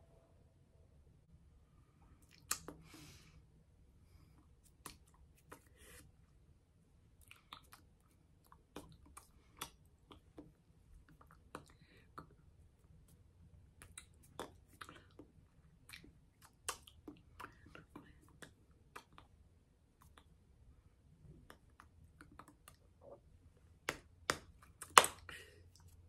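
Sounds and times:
soft breathing: 1.8 - 4.6
mouth clicks and lip smacks: 2.2 - 2.9, 4.6 - 6.1, 7.2 - 20.4, 21.2 - 23.2, 23.9 - 26.0.

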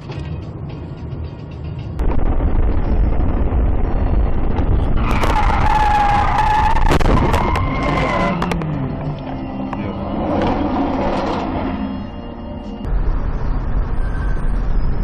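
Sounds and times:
engine and road rumble: 0.0 - 15.0
tyres screeching in a skid: 5.0 - 8.6.

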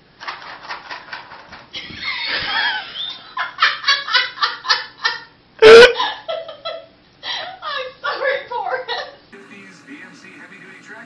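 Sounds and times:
person laughing hard: 1.8 - 6.8.

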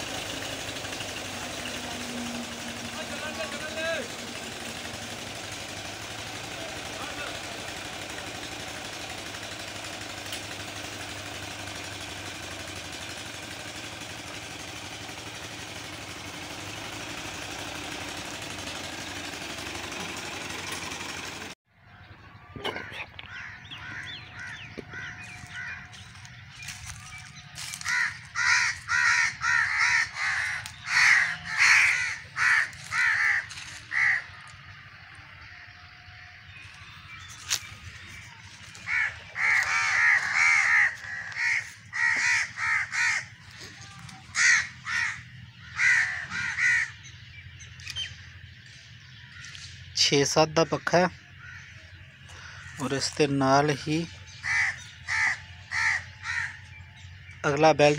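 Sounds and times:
tractor diesel engine running: 0.0 - 57.9
crow cawing: 21.9 - 47.4, 48.1 - 49.7, 50.6 - 57.4.

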